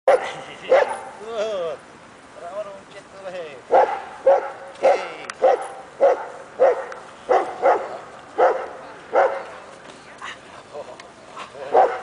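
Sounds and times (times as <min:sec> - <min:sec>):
dog barking sharply: 0:03.7 - 0:09.4, 0:11.7 - 0:12.0.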